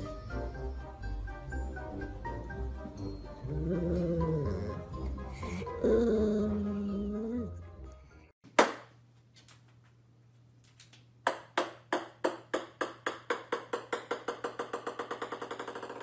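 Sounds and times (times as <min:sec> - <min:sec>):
small ball bouncing on wooden floor: 0:11.2 - 0:16.0.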